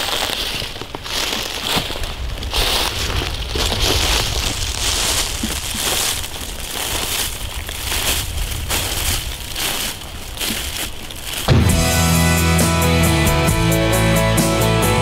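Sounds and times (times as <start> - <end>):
footsteps crunching dry leaves: 0.0 - 12.0.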